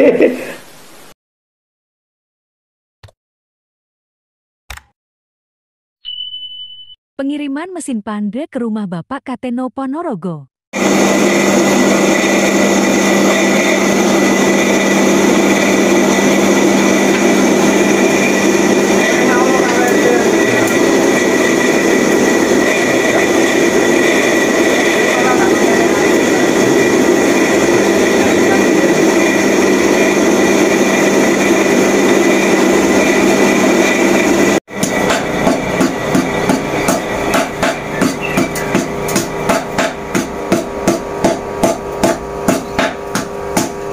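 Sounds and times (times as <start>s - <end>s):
electric motor humming: 10.8s - 43.9s
power hammer blows: 10.8s - 43.9s.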